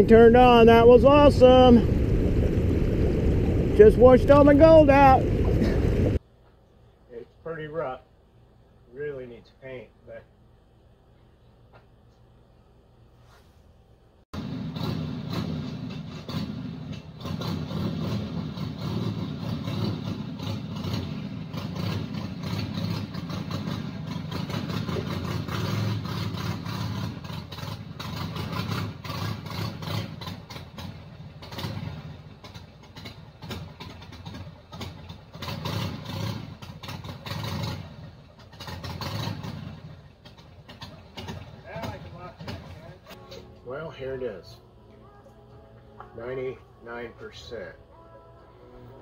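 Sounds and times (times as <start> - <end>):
motorcycle engine running: 0.0 - 6.2, 14.4 - 43.2.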